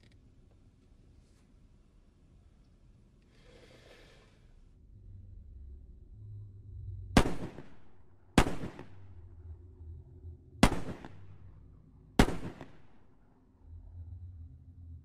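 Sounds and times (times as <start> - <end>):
handgun shots inside a car: 7.2 - 9.2, 10.6 - 11.4, 12.2 - 13.0.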